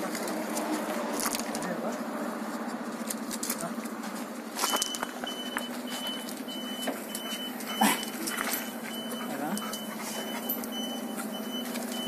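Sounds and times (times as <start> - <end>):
high electronic beeps: 4.7 - 12.0.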